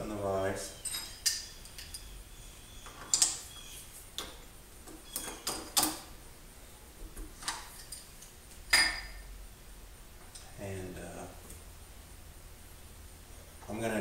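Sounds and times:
metal clinks and knocks: 0.8s - 2.2s, 8.7s - 9.2s.

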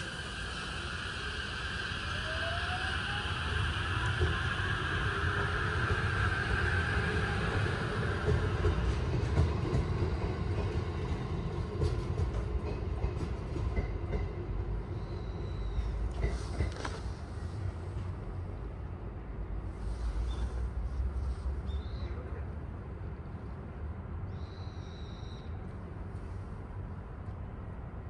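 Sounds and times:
rail clicks: 0.0s - 18.1s
freight train rumbling past: 0.0s - 24.6s.

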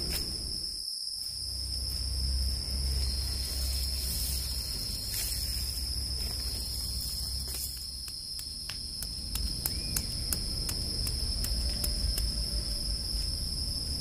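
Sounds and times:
high-pitched insect drone: 0.0s - 14.0s
sharp clicks: 7.5s - 12.6s.

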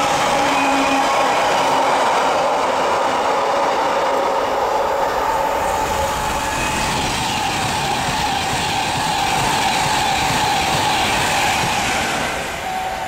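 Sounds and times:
train wheels rushing on rail: 0.0s - 13.0s.

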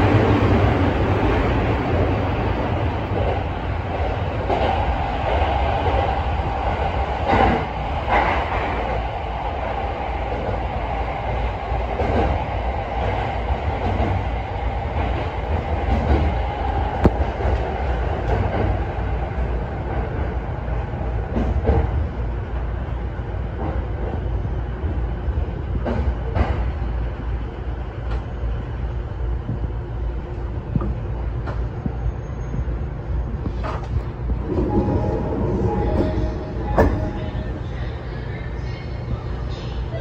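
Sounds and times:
train wheels rumbling on rail: 0.0s - 40.0s
sharp clacks of train wheels: 25.8s - 26.8s.

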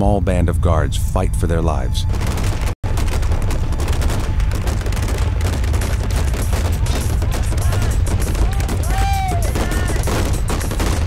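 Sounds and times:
automatic gunfire: 2.2s - 11.0s.

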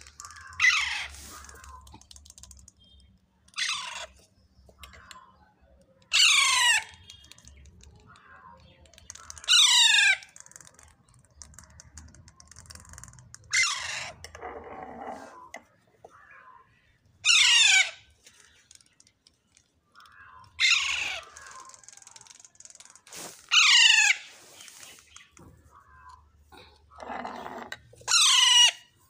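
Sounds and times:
parakeet chicks begging calls: 0.2s - 1.8s, 6.1s - 7.1s, 17.2s - 18.1s, 20.5s - 21.8s, 23.5s - 25.3s, 27.0s - 28.9s.

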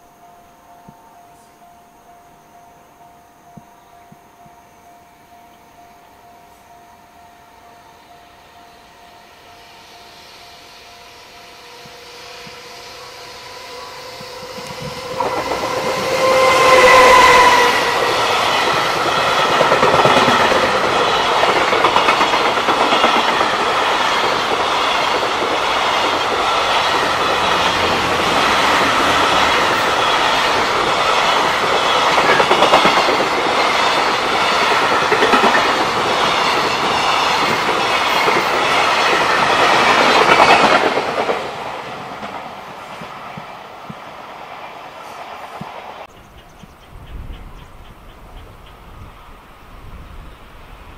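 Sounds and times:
locomotive horn: 10.9s - 20.9s
train wheels clacking over rail joints: 13.9s - 44.1s.

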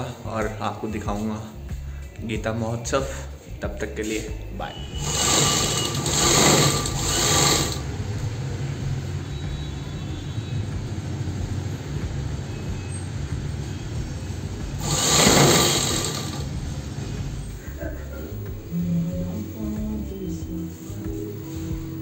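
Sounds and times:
sewing machine stitching: 5.0s - 7.8s, 14.8s - 16.5s.

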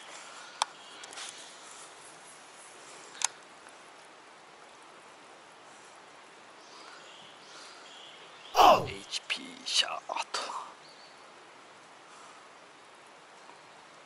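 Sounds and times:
faint outdoor hiss: 0.0s - 14.0s.

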